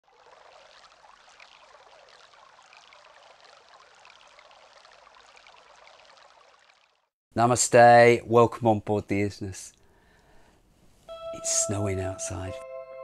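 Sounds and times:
water trickling: 0.0 - 7.2.

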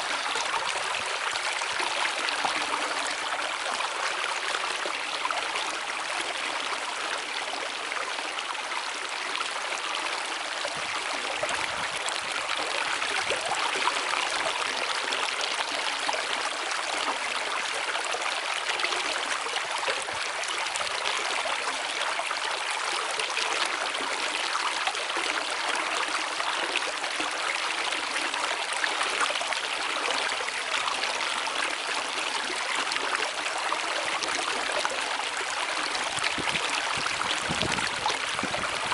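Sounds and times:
rushing river water: 0.0 - 38.9.

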